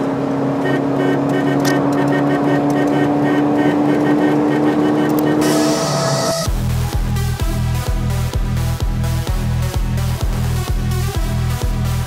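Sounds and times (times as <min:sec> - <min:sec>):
road noise: 0:00.0 - 0:06.5
car engine cruising: 0:00.0 - 0:09.6.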